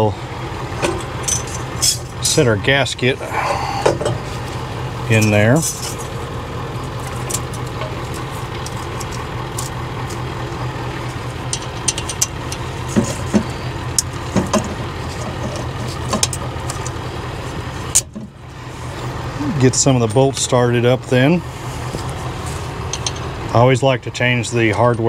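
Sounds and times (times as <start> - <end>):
low engine drone: 0.0 - 25.0
light metal clinks and taps: 22.9 - 23.3.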